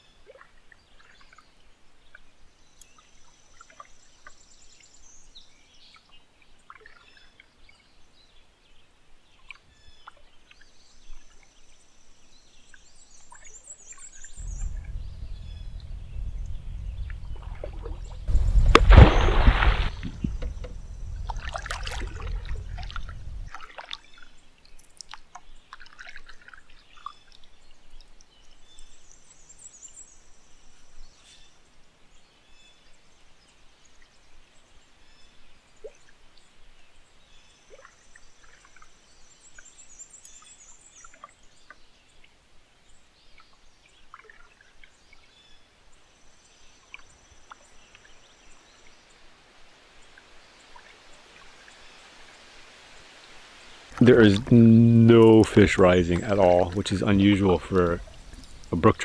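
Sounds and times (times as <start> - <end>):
water splashing beside canoe: 14.2 - 24.4, 50.0 - 59.0
low rumble: 14.4 - 23.6, 53.9 - 59.0.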